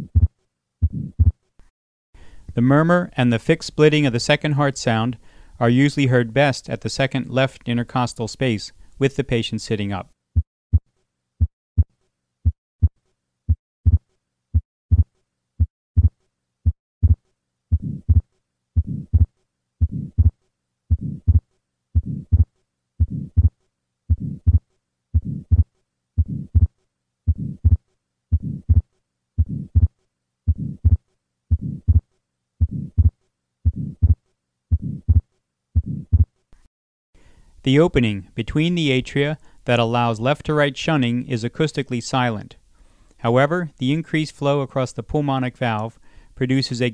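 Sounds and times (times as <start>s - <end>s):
heartbeat through stethoscope: 0.0s - 1.4s, 10.4s - 10.8s, 11.4s - 36.4s
soft heart murmur: 0.0s - 1.4s, 13.5s - 36.3s.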